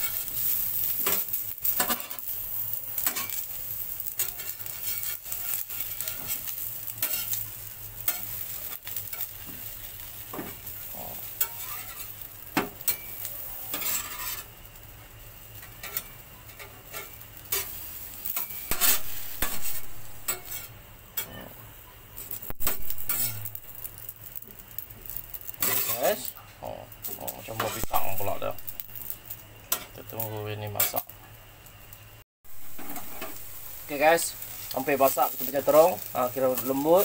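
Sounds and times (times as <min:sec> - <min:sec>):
vegetables sizzling on grill: 0:00.0 - 0:37.0
wood fire crackling and popping: 0:00.0 - 0:37.0.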